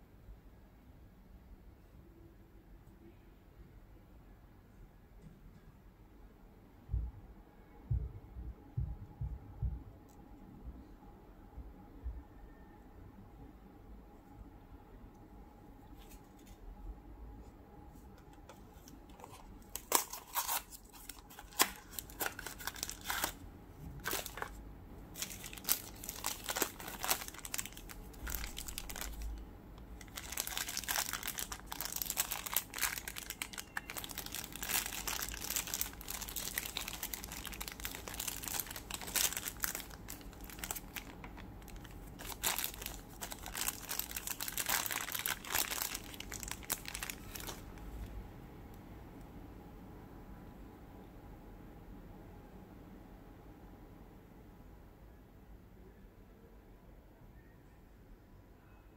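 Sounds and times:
plastic bag crinkling: 18.8s - 48.1s.

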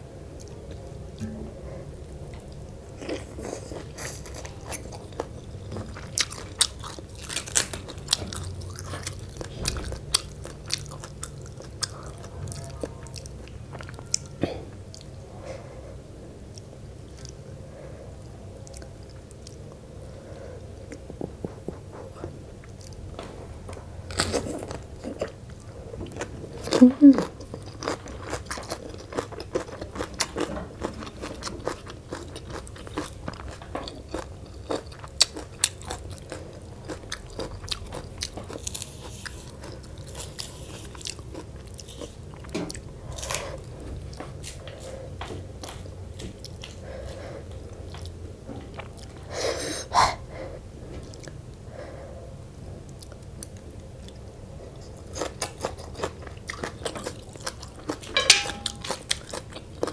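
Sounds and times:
person chewing and crunching: 2.6s - 15.2s, 24.0s - 49.3s, 52.9s - 59.9s.

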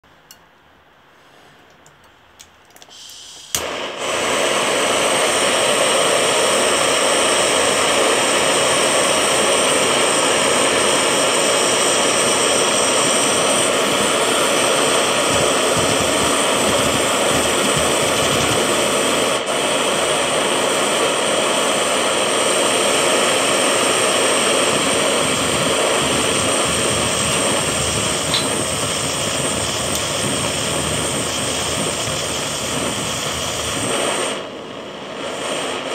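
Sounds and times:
torch igniter click: 2.4s - 6.4s, 12.5s - 19.4s, 24.5s - 34.4s
torch flame roaring: 3.2s - 35.9s.

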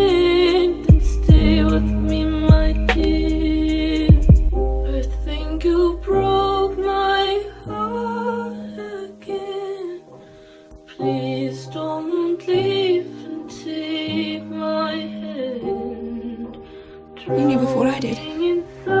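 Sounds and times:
person singing: 0.0s - 10.2s, 10.8s - 19.0s
sustained low bass notes: 0.9s - 6.2s.

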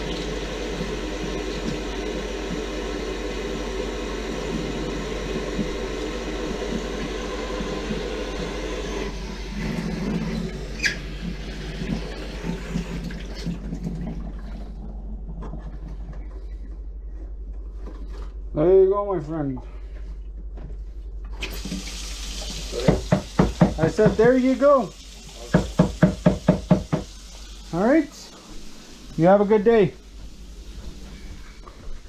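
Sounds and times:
sharp squeak: 10.8s - 11.0s
faucet running into a steel sink: 21.4s - 28.4s.

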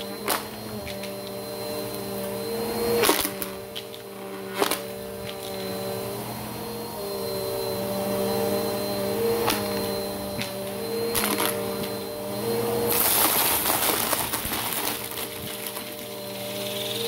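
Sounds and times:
vacuum cleaner motor hum: 0.0s - 17.0s
rattling crackle of sucked tiles: 12.9s - 17.0s.

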